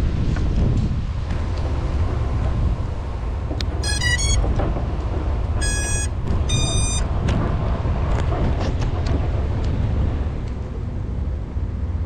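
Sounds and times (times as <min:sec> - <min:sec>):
wind rumble on microphone: 0:00.0 - 0:12.0
drone motors beeping: 0:03.8 - 0:04.5, 0:05.6 - 0:07.1.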